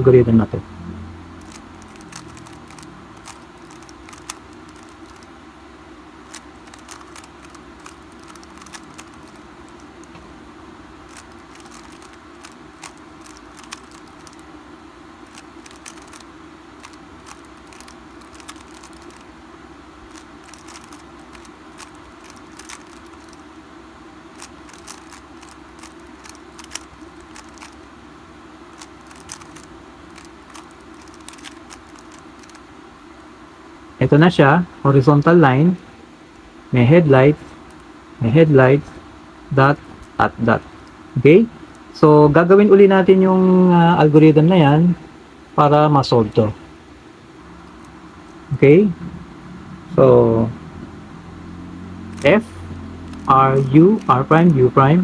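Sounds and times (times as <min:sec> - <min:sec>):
low background hum: 0:00.0 - 0:55.0
puzzle cube clicking: 0:01.4 - 0:05.3, 0:06.3 - 0:10.2, 0:11.1 - 0:14.5, 0:15.2 - 0:19.3, 0:20.1 - 0:23.4, 0:24.3 - 0:27.9, 0:28.8 - 0:32.6, 0:52.1 - 0:52.4, 0:53.0 - 0:54.4.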